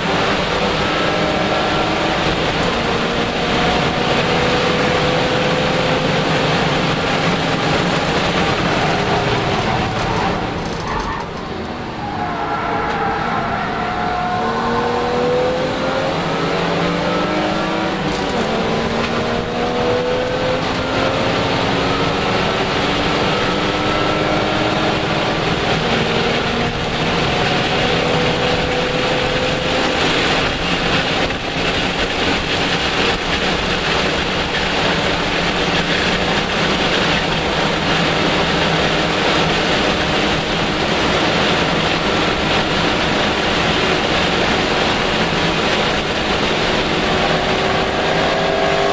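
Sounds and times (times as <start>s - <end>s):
race car engine at high speed: 0.0s - 48.9s
wind and road noise: 0.0s - 48.9s.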